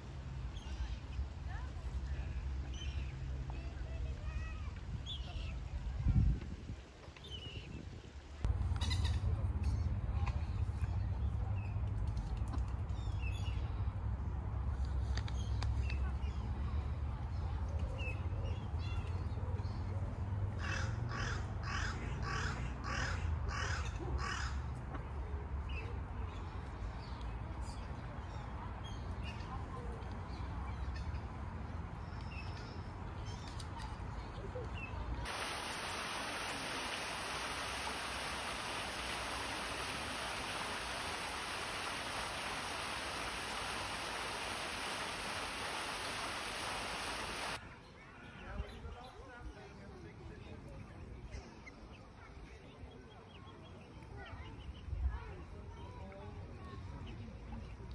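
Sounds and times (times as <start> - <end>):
fountain water splashing: 35.3 - 47.6.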